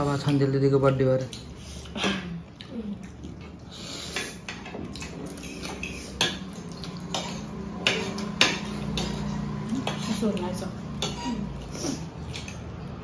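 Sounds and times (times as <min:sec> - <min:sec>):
cutlery scraping ceramic plates: 0:04.0 - 0:12.7.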